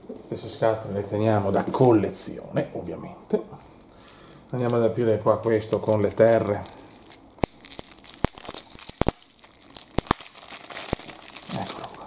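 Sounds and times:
wrapper tearing and crinkling: 4.6 - 12.0.

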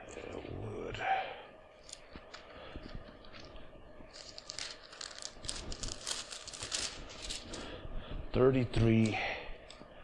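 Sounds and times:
thin pages rustling: 1.8 - 7.7.

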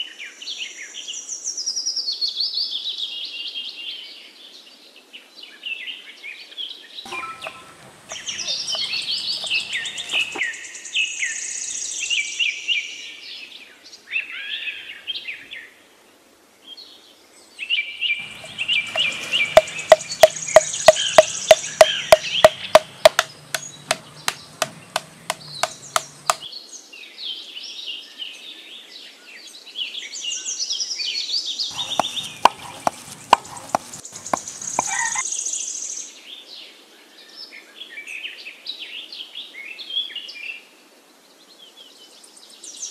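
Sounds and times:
birds singing and chirping: 7.1 - 10.4, 18.2 - 26.4, 31.7 - 35.2
knife chopping on a board: 7.3 - 10.4, 18.2 - 26.4, 31.7 - 35.2.

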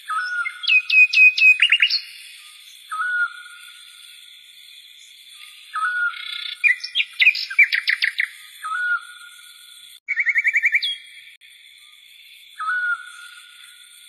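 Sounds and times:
bird whistling: 0.0 - 3.6, 5.7 - 9.2, 10.1 - 11.1, 12.6 - 13.5.

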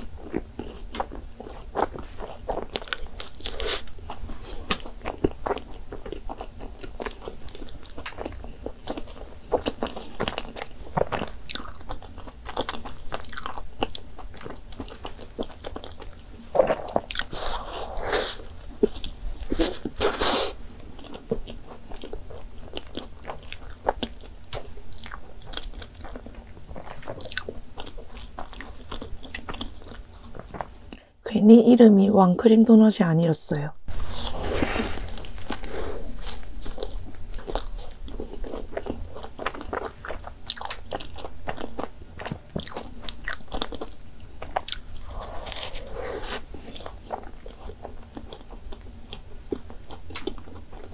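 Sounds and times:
wet chewing: 0.0 - 31.0, 34.0 - 50.9.

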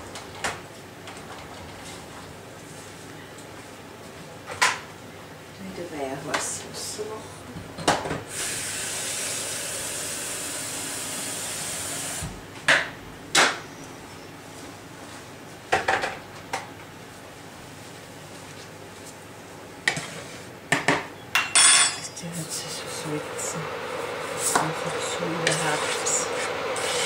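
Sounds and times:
dishes and utensils clattering: 20.8 - 22.1.

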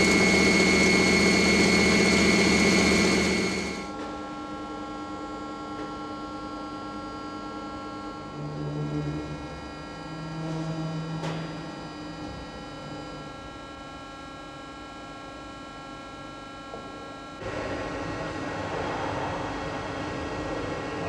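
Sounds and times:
lathe humming and whining: 0.0 - 4.2.

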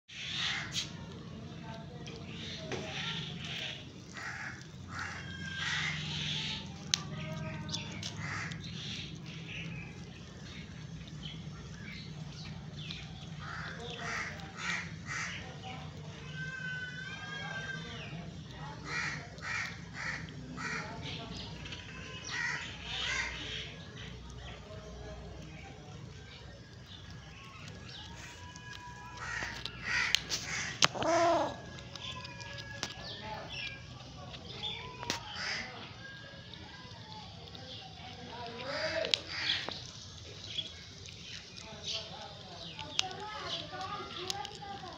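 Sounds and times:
kitten chewing with crunching bites: 0.2 - 44.9
harsh animal calls: 2.9 - 9.3, 13.3 - 23.7, 27.4 - 33.9, 35.2 - 36.1.

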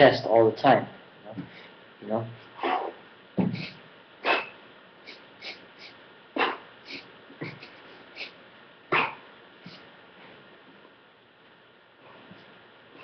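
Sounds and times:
sharp bursts of breath: 1.5 - 1.8, 2.6 - 10.4.

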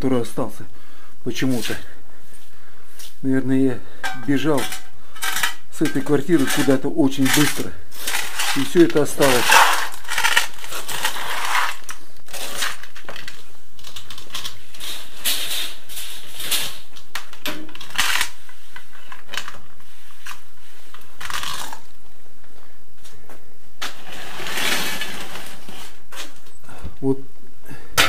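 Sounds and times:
brush sweeping rubble: 4.2 - 12.6
small stones rattling: 4.3 - 15.0.

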